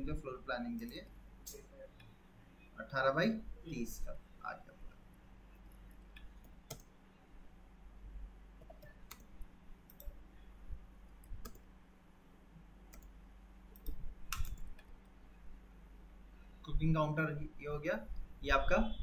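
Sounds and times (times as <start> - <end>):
mouse and keyboard clicks: 13.8 - 14.9.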